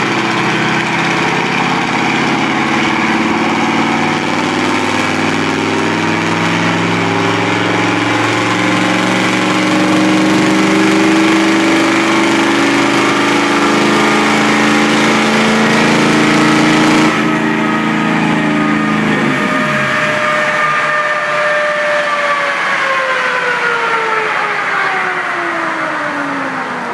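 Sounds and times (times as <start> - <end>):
drivetrain whine falling in pitch: 0.0 - 25.5
diesel engine at high revs: 0.0 - 26.9.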